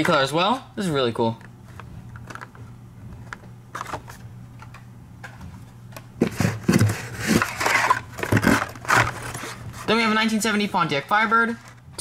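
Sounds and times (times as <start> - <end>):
card and plastic rustling: 1.4 - 11.9.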